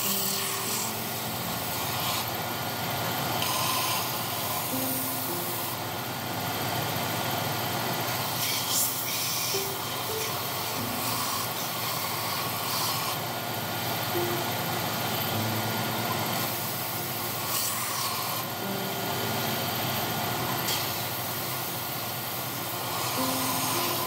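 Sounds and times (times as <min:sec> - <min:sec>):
belt sander sanding wood: 0:00.0 - 0:05.8, 0:08.0 - 0:13.4, 0:15.7 - 0:19.4, 0:20.6 - 0:24.0.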